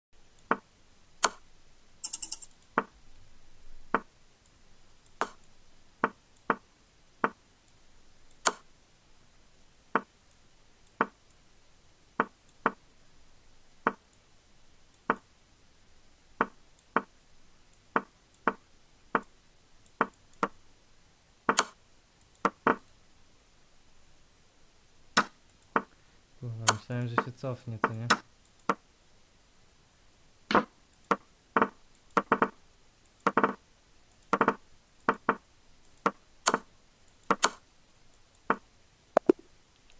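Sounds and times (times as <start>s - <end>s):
chess piece move clicks: 1.2s - 1.4s, 2.0s - 2.9s, 21.5s - 21.8s, 34.2s - 37.6s, 39.2s - 39.9s.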